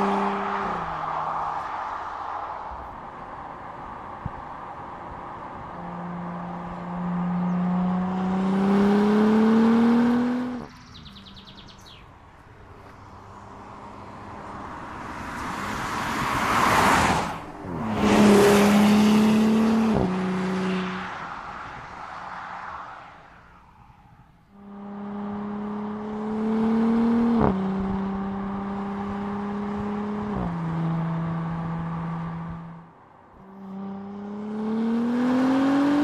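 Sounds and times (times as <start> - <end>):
car engine accelerating: 0.0 - 1.9, 3.4 - 11.9, 12.8 - 23.9, 24.5 - 36.0
car passing by: 12.6 - 24.4.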